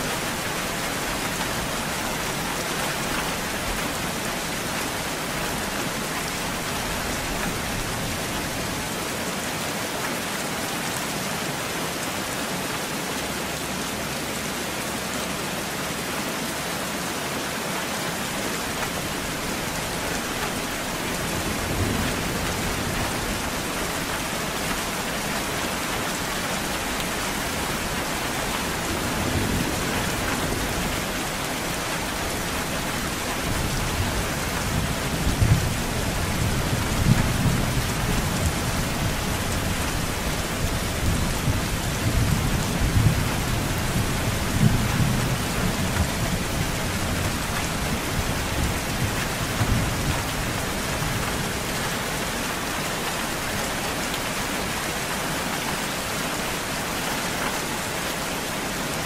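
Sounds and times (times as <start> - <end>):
steady rainfall: 0.0 - 59.0
low rumble of thunder: 21.0 - 23.9, 28.7 - 51.6.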